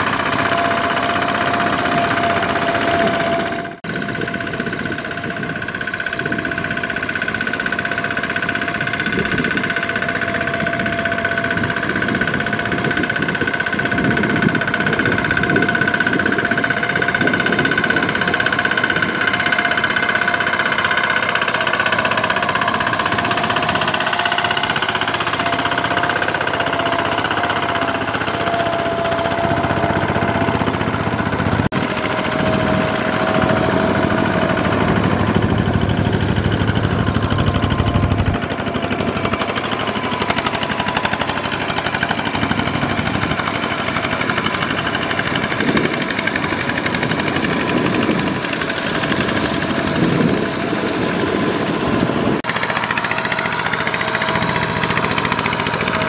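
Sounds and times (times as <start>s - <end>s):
diesel engine knocking: 0.0s - 56.0s.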